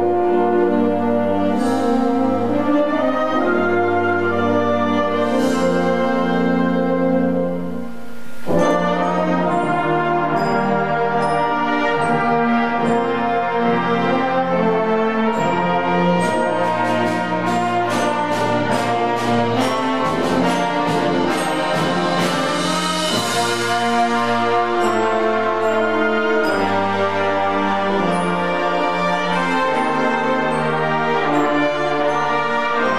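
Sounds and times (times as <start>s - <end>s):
concert band playing: 0.0s - 32.9s
quick percussion strokes: 16.2s - 27.0s.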